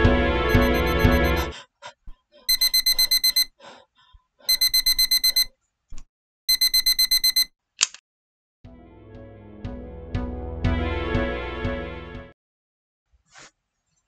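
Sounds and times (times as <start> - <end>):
alarm clock beeping: 0.5 - 1.5, 2.5 - 3.5, 4.5 - 5.5, 6.5 - 7.5.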